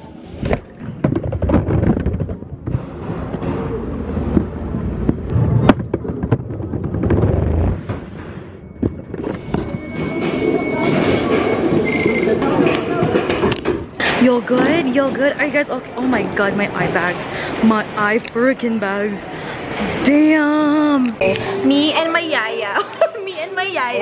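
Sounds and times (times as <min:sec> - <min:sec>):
faint steady high tone: 0:08.4 - 0:12.4.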